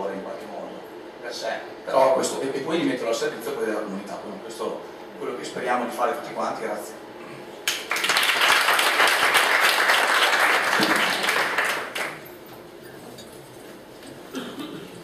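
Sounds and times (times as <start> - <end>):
low room noise: 0.0 - 15.0
audience applauding: 7.7 - 12.3.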